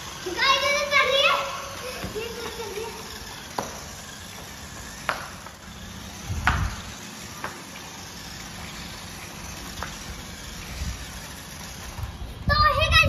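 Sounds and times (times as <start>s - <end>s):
sharp taps and knocks: 3.4s - 5.6s, 6.4s - 6.8s.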